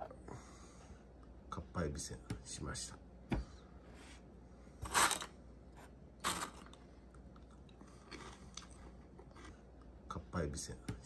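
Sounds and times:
snack sticks crunching: 7.4s - 9.6s.

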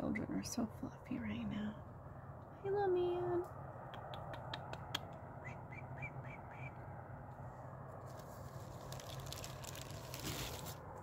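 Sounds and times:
low steady hum: 0.0s - 11.0s
crackling rustle of dry leaves: 7.9s - 11.0s.

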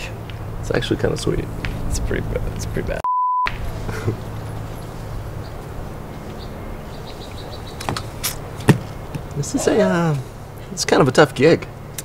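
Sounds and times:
steady low hum: 0.0s - 12.0s
censor beep: 3.0s - 3.5s.

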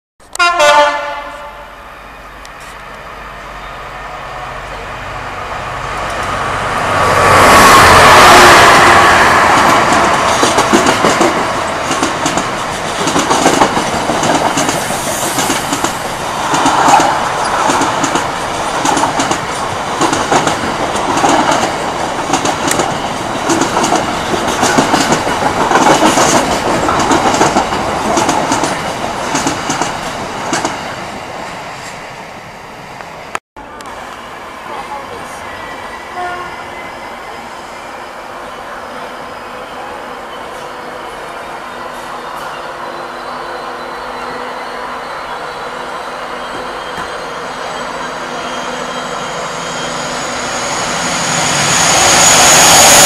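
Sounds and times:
train horn blast: 0.3s - 1.9s, 7.6s - 9.4s, 36.0s - 36.8s
diesel train rumbling: 0.4s - 53.0s.

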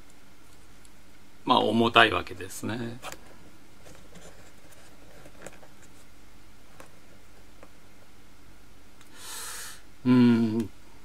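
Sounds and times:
soft breath: 9.1s - 9.9s.

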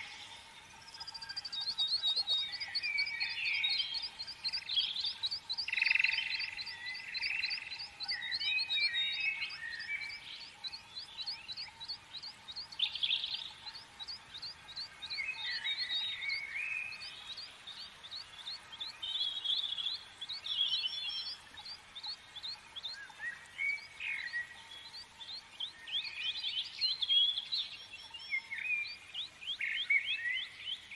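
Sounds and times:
birds warbling: 0.9s - 24.0s.

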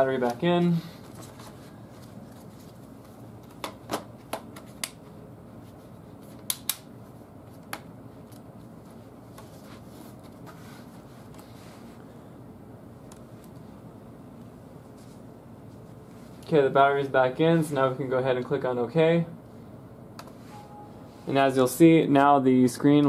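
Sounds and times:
steady low hiss: 6.9s - 23.0s.

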